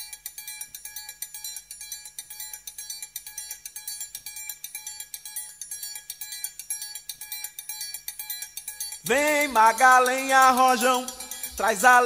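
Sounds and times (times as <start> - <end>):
bright bell-like notes: 7.8 - 12.0.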